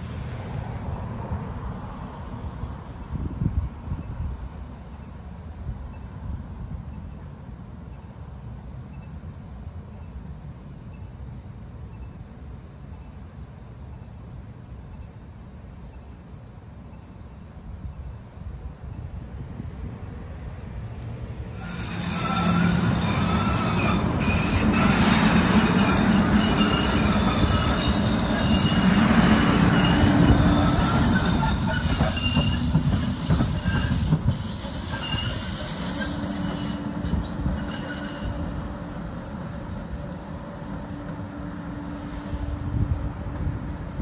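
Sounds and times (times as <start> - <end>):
train wheels rumbling on rails: 18.1 - 44.0
train wheels squealing: 21.5 - 40.1.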